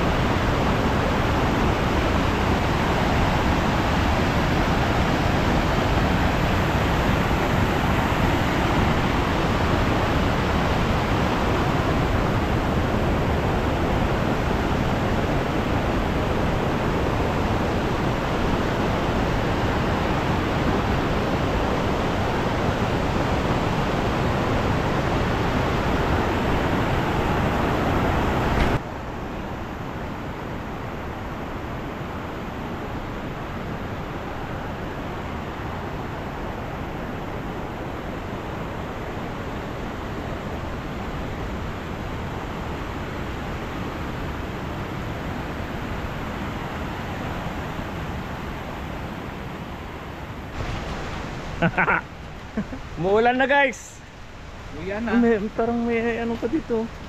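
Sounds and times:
water rushing over rocks: 0.0s - 28.9s, 41.4s - 57.0s.

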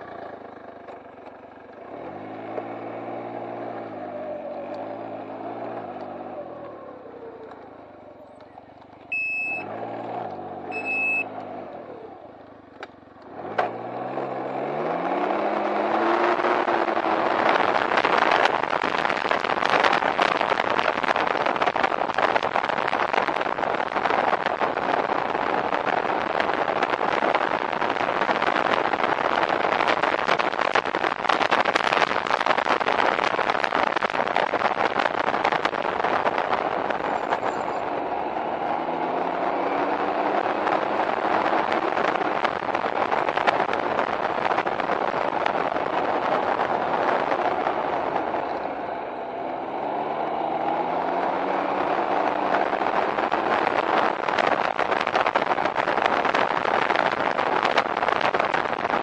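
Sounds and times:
vehicle engine pulling away: 0.0s - 57.6s
short electronic beep: 9.1s - 9.8s, 10.7s - 11.4s
wind rushing over microphone: 13.4s - 59.0s.

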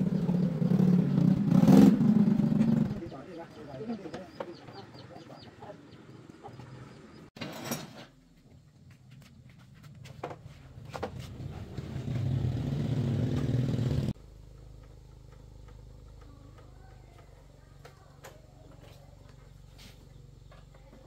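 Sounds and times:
small motorcycle engine running: 0.0s - 3.6s, 11.2s - 21.0s.

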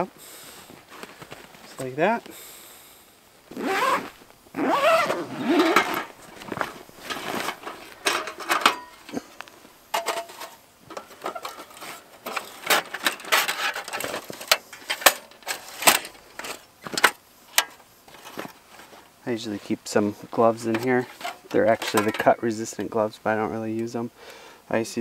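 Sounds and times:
zipper pulled open: 3.5s - 7.6s
fabric rustling: 3.5s - 9.2s
metal parts clicking and knocking: 7.0s - 9.2s, 9.9s - 18.4s.

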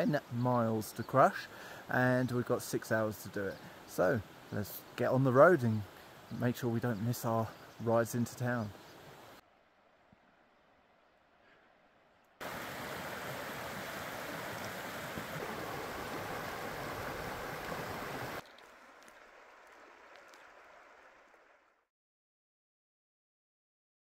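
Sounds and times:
faint steady hiss: 0.0s - 21.8s
creek water rushing: 12.4s - 21.7s.

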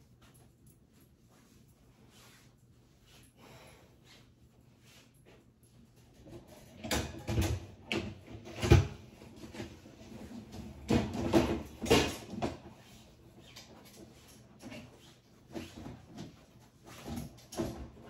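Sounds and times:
objects knocking and scraping: 6.2s - 12.8s.

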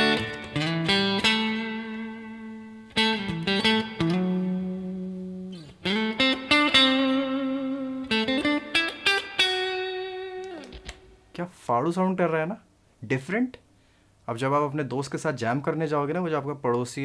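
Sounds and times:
electric guitar slow lead line: 0.0s - 11.2s.

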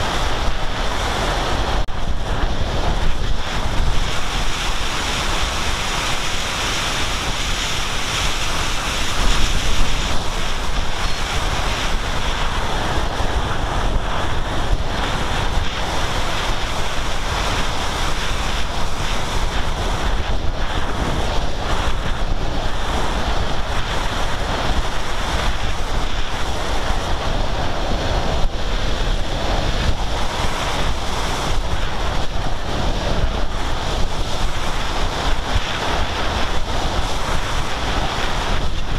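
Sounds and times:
airflow rushing over microphone: 0.0s - 38.9s.

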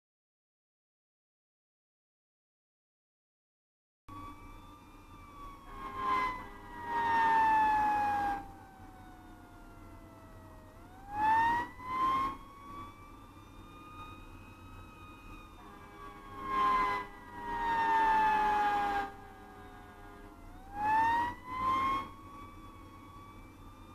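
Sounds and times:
fire engine siren wailing: 4.1s - 23.9s
truck engine rumble: 4.1s - 23.9s
air horn blasts: 5.6s - 8.5s, 15.6s - 22.1s.

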